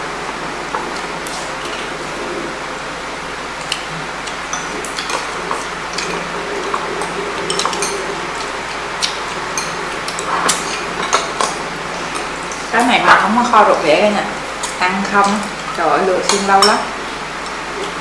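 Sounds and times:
steady background hiss: 0:00.0 - 0:18.0
utensils clicking on plates: 0:03.6 - 0:18.0.

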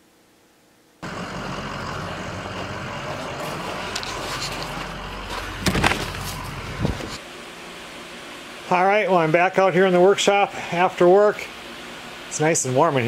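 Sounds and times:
low hum: 0:01.0 - 0:08.8.

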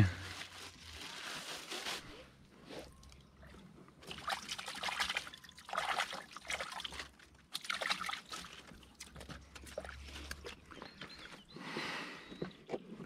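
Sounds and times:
water trickling: 0:04.0 - 0:11.3.

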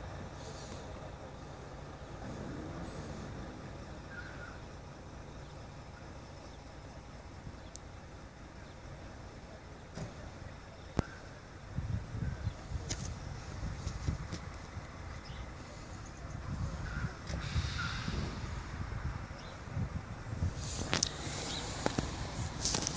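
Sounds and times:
vehicle engines idling: 0:00.0 - 0:22.9.

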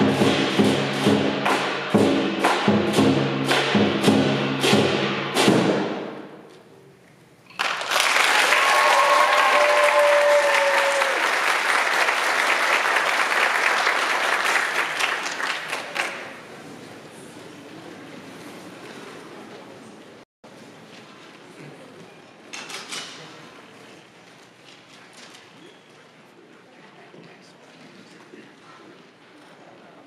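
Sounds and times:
big drum strikes: 0:00.0 - 0:06.4
audience applause: 0:07.5 - 0:16.4
person whooping: 0:08.5 - 0:11.4.

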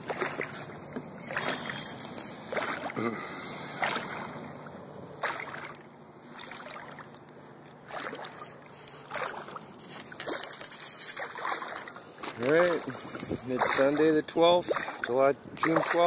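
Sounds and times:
lake water lapping: 0:00.0 - 0:16.0.

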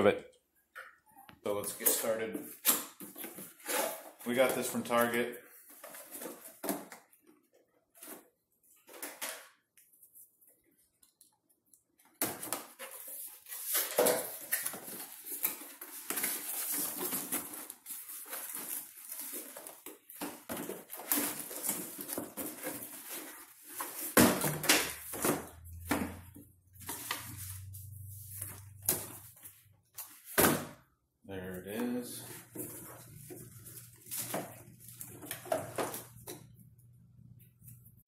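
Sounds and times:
cardboard scraping and rustling: 0:12.7 - 0:30.4.

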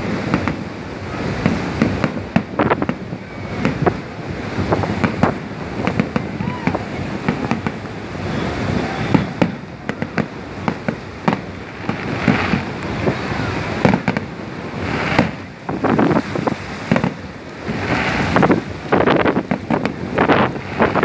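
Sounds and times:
fireworks bangs: 0:00.0 - 0:21.0
fireworks crackling: 0:00.0 - 0:21.0.

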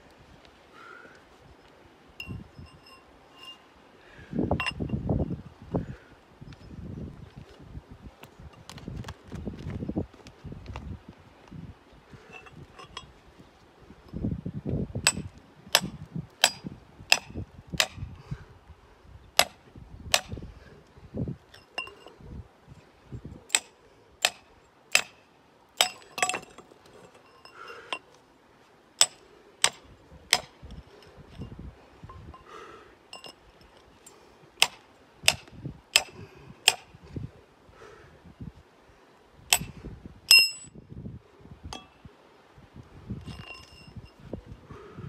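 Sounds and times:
metal bar clinking on rock: 0:04.6 - 0:05.0, 0:12.3 - 0:13.1, 0:21.5 - 0:22.1, 0:25.8 - 0:28.1, 0:33.1 - 0:35.4, 0:40.3 - 0:40.8, 0:43.2 - 0:44.2.

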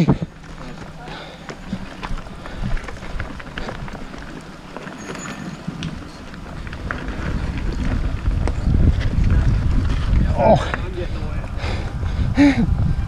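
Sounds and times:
bike clicks and rattles: 0:00.0 - 0:13.0
bike tyre rumble on dirt: 0:00.0 - 0:13.0
wind on microphone: 0:05.5 - 0:13.0.

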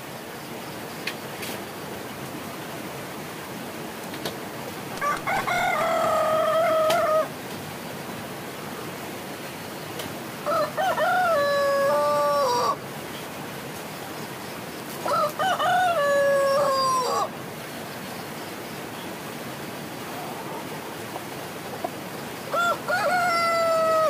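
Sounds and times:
steady background hiss: 0:00.0 - 0:24.0
rooster crowing: 0:05.0 - 0:07.3, 0:10.4 - 0:12.8, 0:15.0 - 0:17.3, 0:22.5 - 0:24.0.

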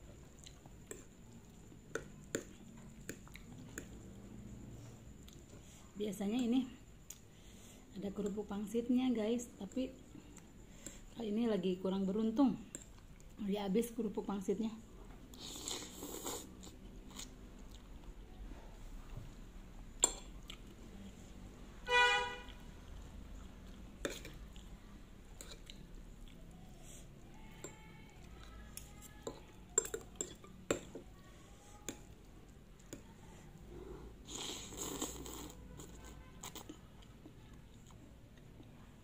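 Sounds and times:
quiet chewing: 0:00.0 - 0:05.9, 0:15.3 - 0:19.2, 0:20.0 - 0:21.2, 0:22.4 - 0:39.0
noodle slurping: 0:34.2 - 0:35.9.

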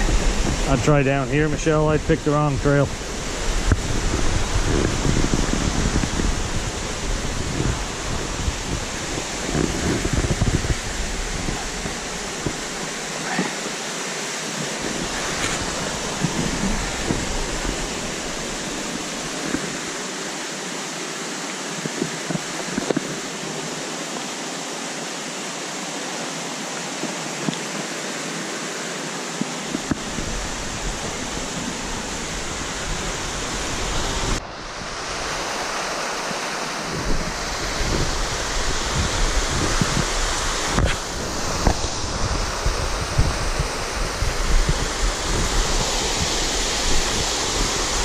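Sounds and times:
wind buffeting microphone: 0:00.0 - 0:13.2, 0:14.5 - 0:20.1, 0:29.7 - 0:48.0
flowing water: 0:00.0 - 0:48.0.

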